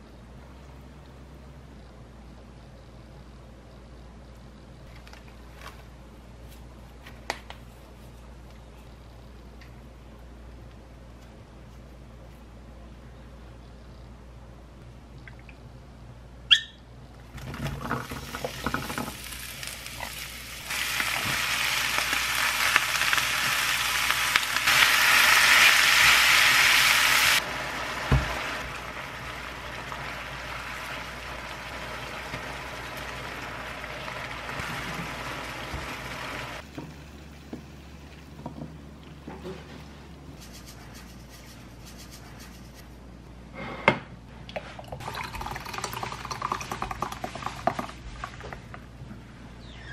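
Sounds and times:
food sizzling in a frying pan: 18.0 - 36.6.

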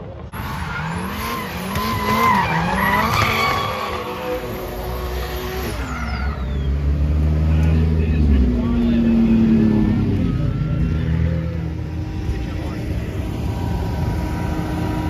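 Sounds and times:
car engines revving: 0.0 - 15.0
tyres squealing: 0.4 - 6.9.

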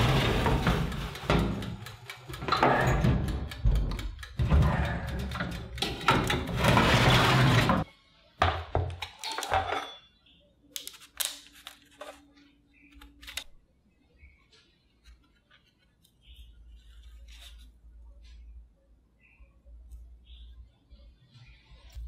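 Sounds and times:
metal baking tray scraping: 0.0 - 1.2, 6.2 - 7.9
sharp metal clicks: 0.1 - 6.5.

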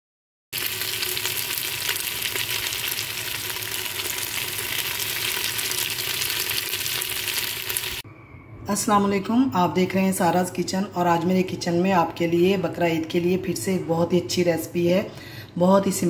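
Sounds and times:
meat sizzling in oil: 0.6 - 8.0.

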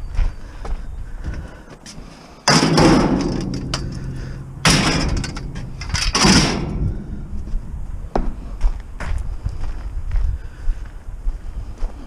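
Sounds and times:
scrap metal crashing into bin: 2.5 - 6.8.

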